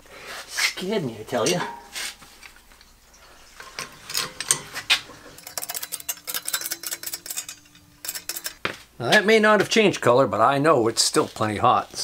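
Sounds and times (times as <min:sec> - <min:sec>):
metal plate clinking and rattling: 0:03.6 - 0:08.6.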